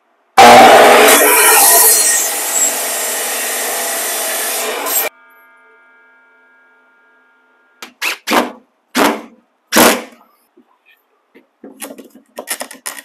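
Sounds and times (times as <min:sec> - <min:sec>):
miter saw blade whine: 0:00.4 - 0:07.4.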